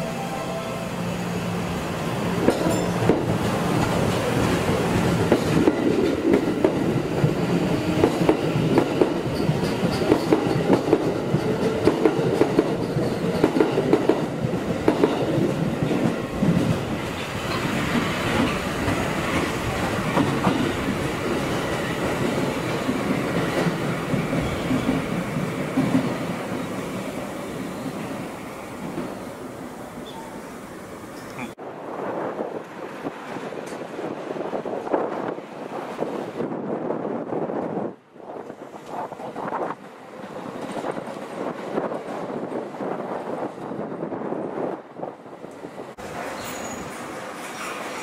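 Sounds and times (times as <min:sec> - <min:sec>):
subway train rumble: 0:00.0 - 0:48.0.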